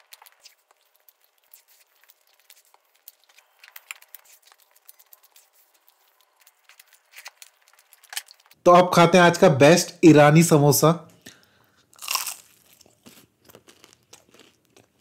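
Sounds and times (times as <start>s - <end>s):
food wrapping crinkling: 0.0s - 8.6s, 11.8s - 15.0s.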